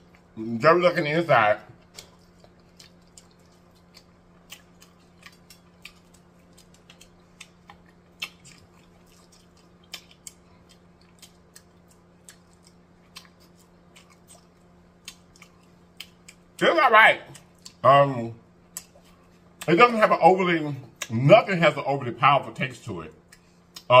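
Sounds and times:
faint steady hum: 0:00.0 - 0:24.0
chewing with wet mouth clicks: 0:01.7 - 0:16.6, 0:17.2 - 0:17.8, 0:18.6 - 0:19.8, 0:20.9 - 0:21.2, 0:23.1 - 0:24.0.

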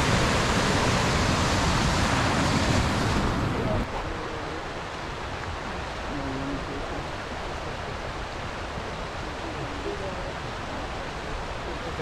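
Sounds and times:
river rushing over rocks: 0:00.0 - 0:12.0.

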